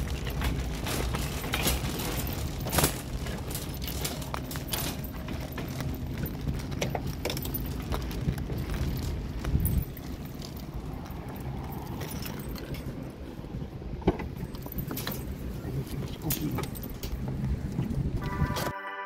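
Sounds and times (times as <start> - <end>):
cart basket rattling and clinking: 0.0 - 13.3, 14.0 - 18.7
shopping cart wheels rumbling: 0.0 - 18.7.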